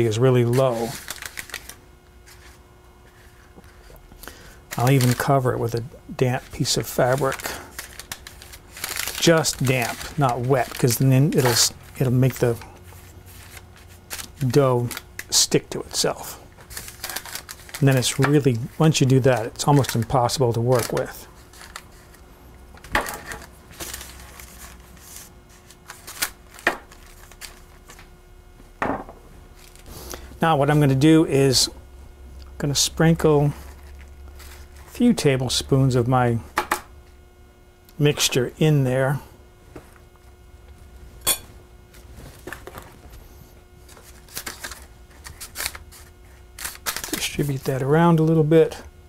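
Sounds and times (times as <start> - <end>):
crisp crackles: 0.3 - 4.0, 4.7 - 15.4, 16.6 - 22.2, 23.1 - 28.1, 43.8 - 47.8
papery rustling: 0.3 - 4.0, 4.7 - 15.4, 16.0 - 22.2, 22.8 - 28.1, 33.6 - 35.0, 43.8 - 47.8.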